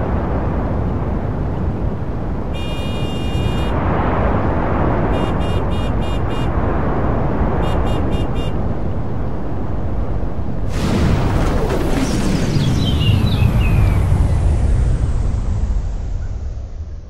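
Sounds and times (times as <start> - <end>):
rumble of passing vehicles: 0.0 - 17.0
long high horn blast: 2.5 - 3.8, 5.1 - 6.6
short quick horn beeps: 2.6 - 3.8, 5.1 - 6.5.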